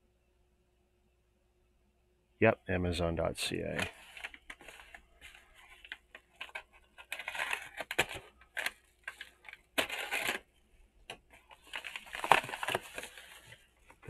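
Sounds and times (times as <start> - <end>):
paper mailer crinkling and tearing: 3.7 - 10.5, 11.3 - 14.0.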